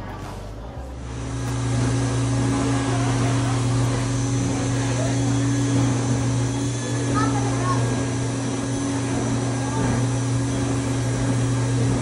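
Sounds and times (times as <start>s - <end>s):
machine drone with low hum: 0.0s - 12.0s
faint voices: 2.4s - 12.0s.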